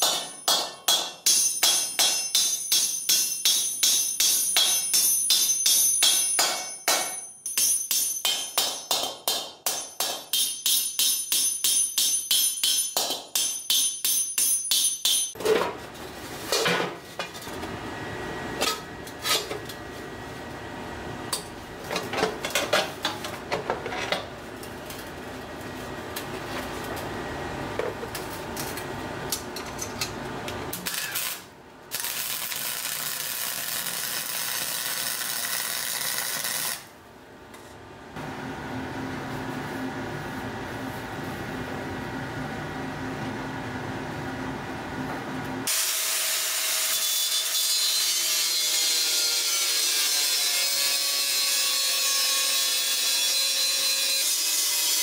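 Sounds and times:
hammer on metal: 0.0s - 15.4s
welding arc crackling hiss: 30.8s - 36.9s.

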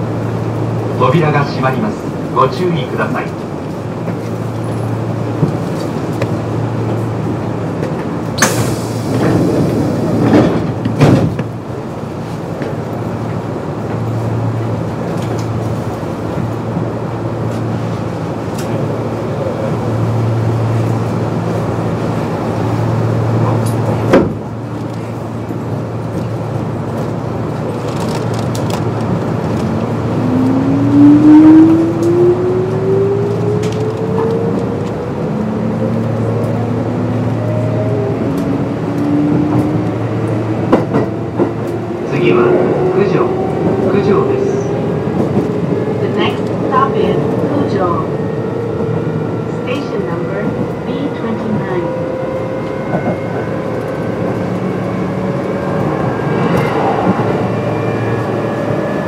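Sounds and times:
train doors closing with air rush: 3.0s - 30.2s
traction motor whine rising: 52.6s - 59.0s.

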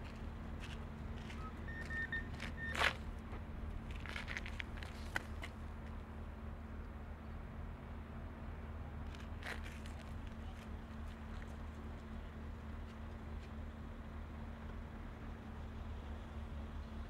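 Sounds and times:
diesel engine humming: 0.0s - 6.7s.

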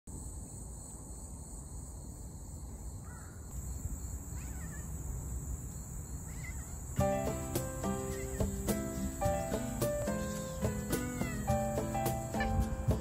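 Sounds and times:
insects trilling: 0.1s - 13.0s
low wind rumble: 1.5s - 13.0s
faint bird calls: 3.0s - 3.5s, 4.2s - 5.1s, 6.2s - 11.8s.

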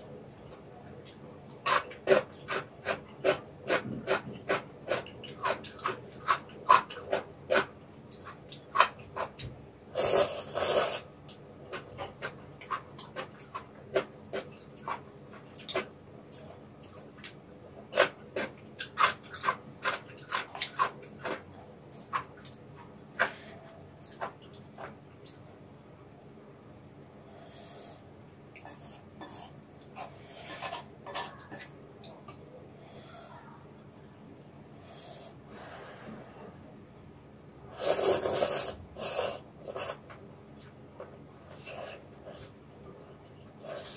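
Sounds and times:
slurping noodles: 9.9s - 11.1s, 37.7s - 40.0s.

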